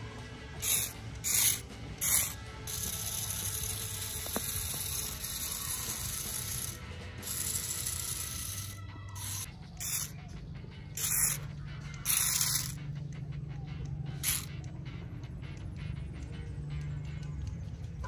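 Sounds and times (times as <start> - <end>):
toy motor whirring and grinding: 0.6 - 13.2, 13.8 - 14.7.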